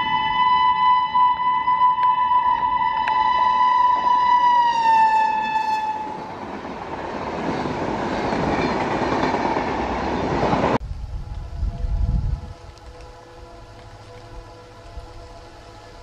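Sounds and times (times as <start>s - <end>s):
locomotive horn blast: 0.0s - 6.3s, 11.2s - 16.0s
train coaches rumbling by: 2.7s - 16.0s.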